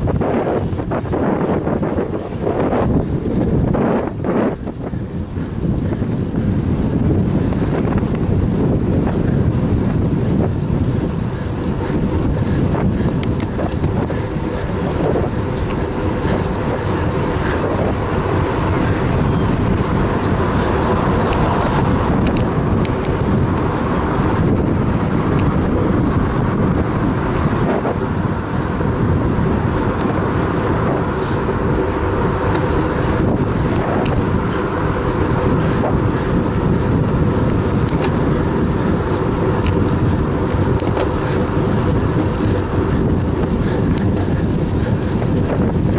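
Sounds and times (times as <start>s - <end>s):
bicycle tyres on asphalt: 0.0s - 45.9s
wind rushing: 0.0s - 45.9s.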